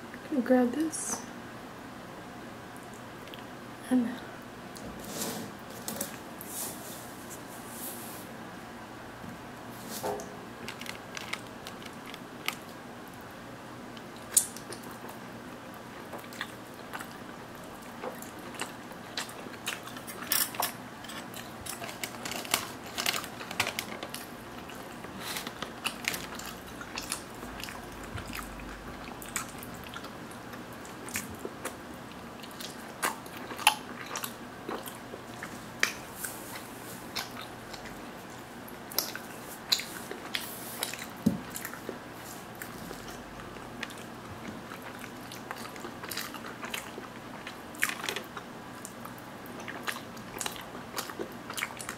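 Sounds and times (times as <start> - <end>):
chewing crispy bread: 9.8 - 51.9.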